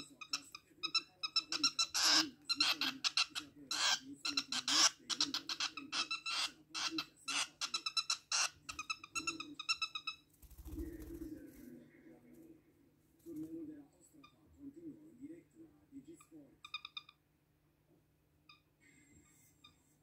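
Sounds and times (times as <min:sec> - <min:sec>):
bird squawks: 0:00.0 - 0:10.3
wings fluttering: 0:10.3 - 0:11.7.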